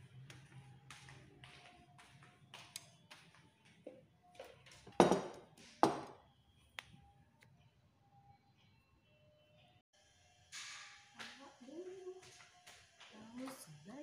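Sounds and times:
bowl knocking with a ring: 5.0s - 6.2s.

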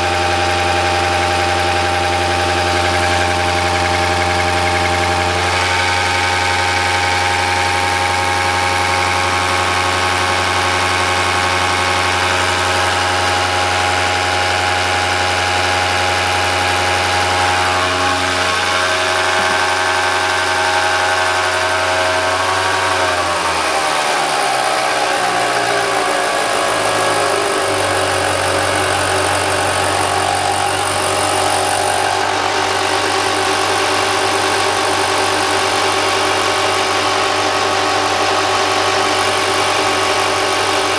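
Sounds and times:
machine humming: 1.0s - 40.9s.

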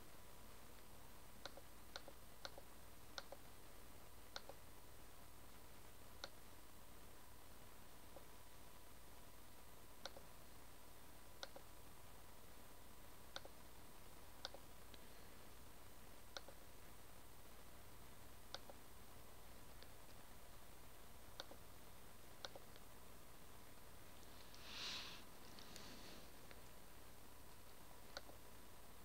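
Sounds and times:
low steady hum: 0.0s - 29.0s
computer mouse clicks: 1.4s - 3.5s, 4.4s - 4.6s, 6.2s - 6.4s, 10.0s - 10.3s, 11.4s - 11.7s, 13.3s - 13.6s, 14.4s - 15.0s, 16.3s - 16.6s, 18.5s - 18.8s, 21.4s - 21.6s, 22.4s - 22.9s, 28.1s - 28.4s.

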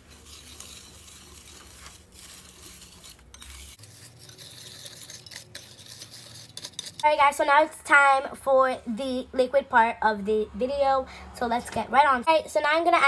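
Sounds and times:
whisk stirring dry powder: 0.0s - 7.4s.

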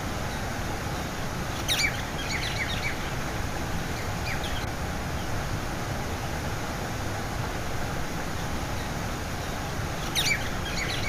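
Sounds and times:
bird chirping: 1.6s - 3.1s, 8.8s - 11.0s.

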